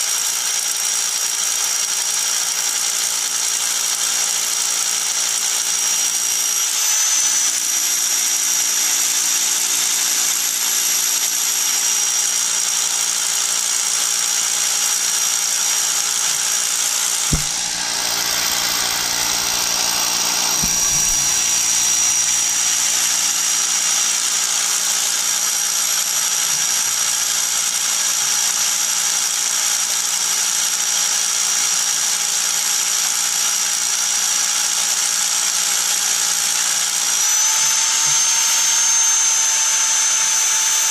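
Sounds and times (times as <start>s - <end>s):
power drill boring into rock: 0.0s - 40.9s
brief knock: 17.3s - 23.3s.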